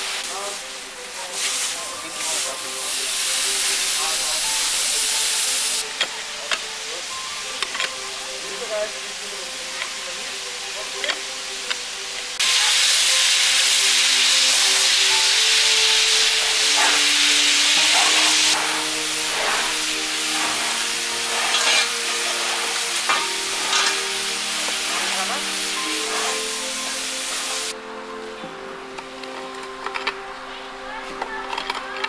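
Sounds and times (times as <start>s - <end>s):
quiet background music: 0.0s - 32.0s
garden tools scraping soil: 16.2s - 26.8s.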